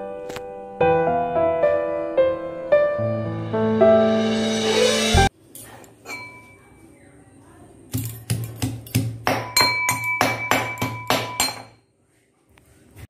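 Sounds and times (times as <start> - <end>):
metal pestle pounding in mortar: 8.0 - 11.8.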